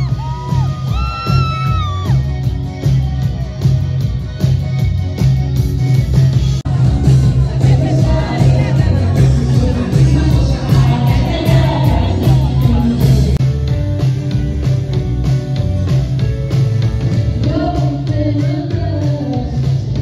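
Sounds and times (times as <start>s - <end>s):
heavy bass beat: 0.0s - 20.0s
live pop rock band: 0.0s - 20.0s
woman singing: 6.7s - 13.4s, 17.4s - 20.0s.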